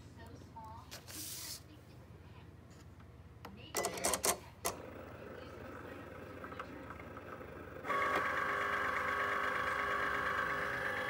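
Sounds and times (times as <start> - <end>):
cutting machine motors whining: 7.0 - 11.0.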